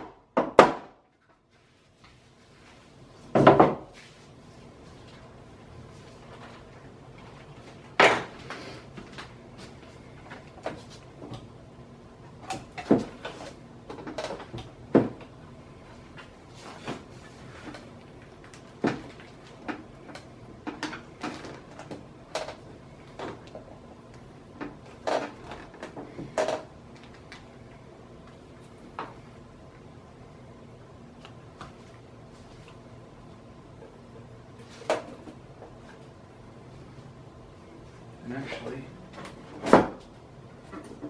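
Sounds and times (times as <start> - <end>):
knocks and creaks of fiberglass mold: 12.4 - 15.3.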